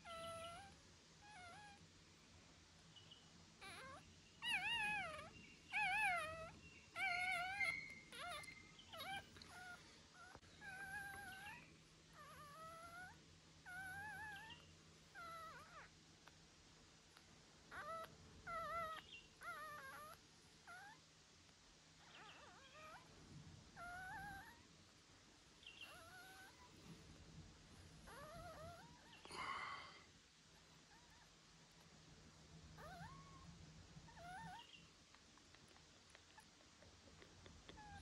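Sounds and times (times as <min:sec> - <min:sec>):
puppy whimpering: 0:00.0 - 0:01.8, 0:03.6 - 0:15.9, 0:17.7 - 0:21.0, 0:22.0 - 0:23.1, 0:23.8 - 0:24.7, 0:25.8 - 0:26.7, 0:28.0 - 0:29.3, 0:32.8 - 0:34.7, 0:37.7 - 0:38.0.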